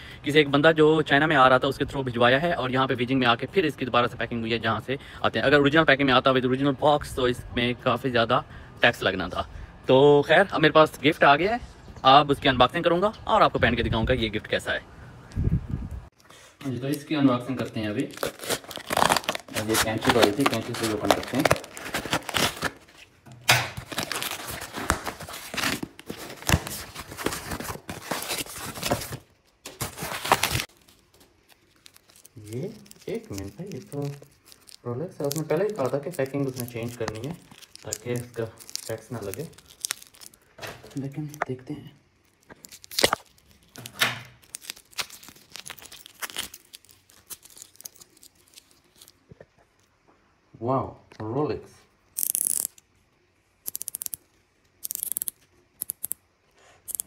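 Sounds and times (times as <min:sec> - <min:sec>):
plastic film peeling and crinkling: 0:17.5 - 0:41.4, 0:42.2 - 0:49.9
packing tape tearing: 0:17.7 - 0:40.5, 0:42.3 - 0:49.2, 0:52.2 - 0:52.8, 0:53.6 - 0:54.2, 0:54.8 - 0:56.2
cardboard flaps scraping and crinkling: 0:18.2 - 0:23.1, 0:23.8 - 0:31.2.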